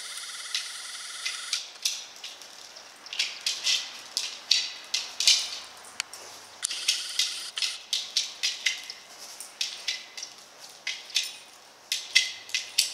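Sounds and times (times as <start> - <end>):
high-pitched whine: 0.0 - 1.6, 6.6 - 7.6.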